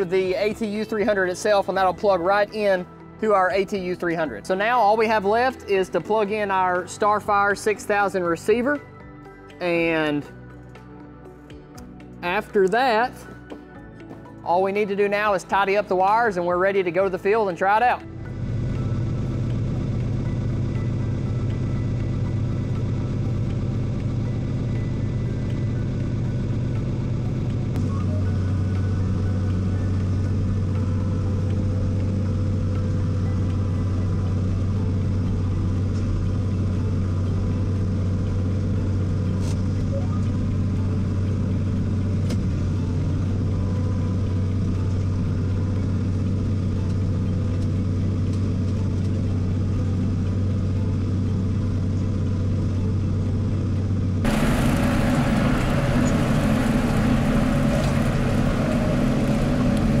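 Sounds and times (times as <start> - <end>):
tractor diesel engine drone: 18.0 - 60.0.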